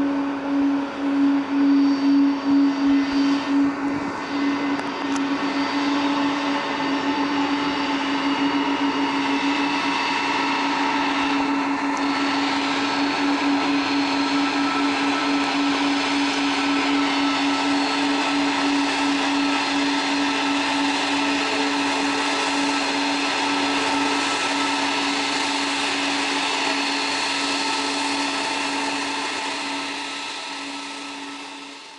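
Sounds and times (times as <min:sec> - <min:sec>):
jet engines whining: 0:00.0 - 0:31.9.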